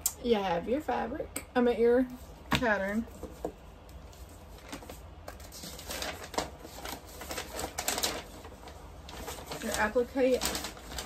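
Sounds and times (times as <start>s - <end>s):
paper rustling: 3.0s - 11.0s.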